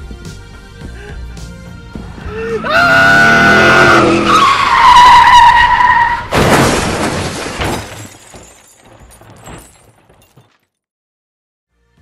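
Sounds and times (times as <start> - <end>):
car tyres squealing: 2.9 - 6.3
car crashing into tree: 6.2 - 10.0
glass breaking: 6.3 - 10.8
debris tinkling: 6.4 - 10.8.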